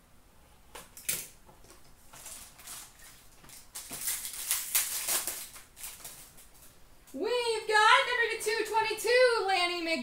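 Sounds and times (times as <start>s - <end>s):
cardboard and wrapper rustling: 2.0s - 6.5s.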